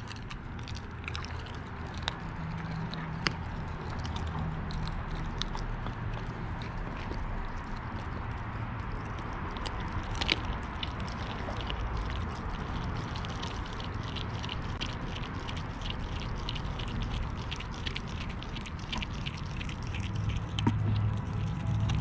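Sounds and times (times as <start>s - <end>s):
puppy chewing fish bones: 0.0s - 22.0s.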